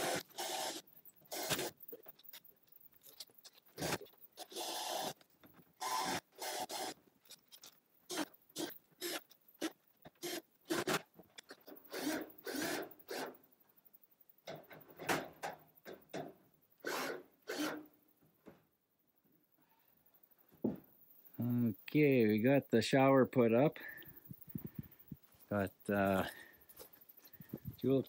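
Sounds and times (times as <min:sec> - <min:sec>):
scraping and rubbing on corrugated metal: 0:00.0 - 0:05.2.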